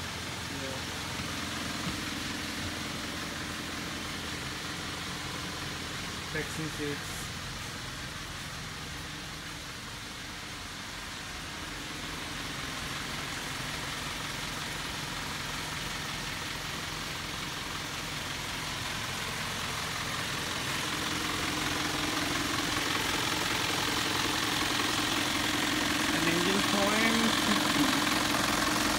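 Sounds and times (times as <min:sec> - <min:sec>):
bus diesel engine idling: 0:00.0 - 0:28.9.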